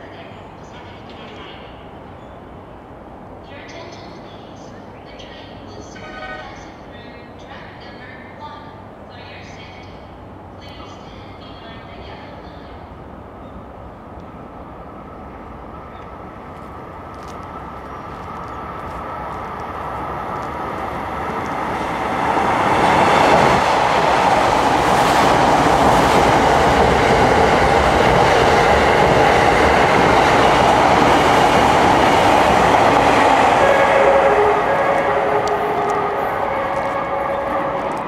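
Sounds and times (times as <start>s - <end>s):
train wheels rumbling on rails: 15.6s - 38.0s.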